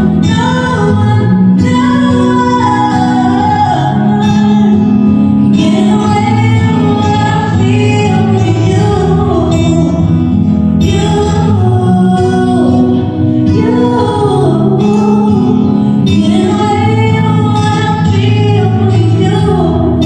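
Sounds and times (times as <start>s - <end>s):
woman singing: 0.0s - 20.0s.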